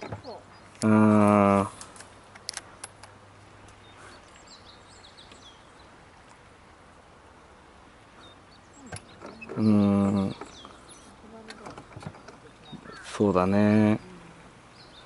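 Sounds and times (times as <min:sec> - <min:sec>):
small clicks: 0:01.8 - 0:04.4
faint bird calls: 0:08.0 - 0:15.0.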